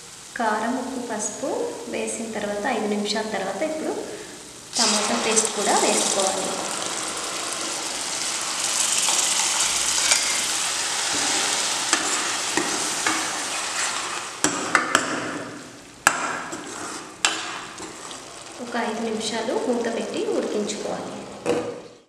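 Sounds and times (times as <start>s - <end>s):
paste sizzling in hot oil: 4.2s - 14.8s, 16.2s - 20.9s.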